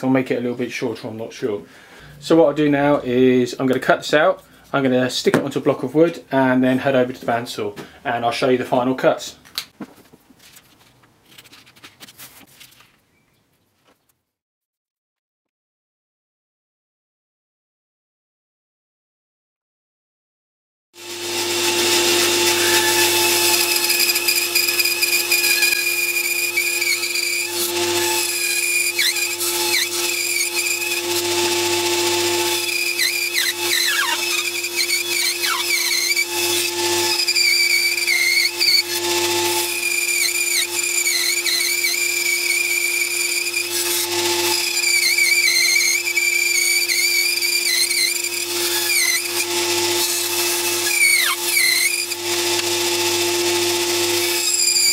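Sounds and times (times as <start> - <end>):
bandsaw cutting wood: 21.0 - 54.9.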